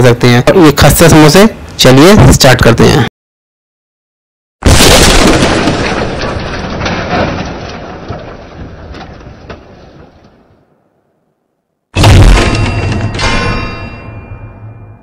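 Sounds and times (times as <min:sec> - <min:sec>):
rumbling clatter: 0:04.7 - 0:10.6.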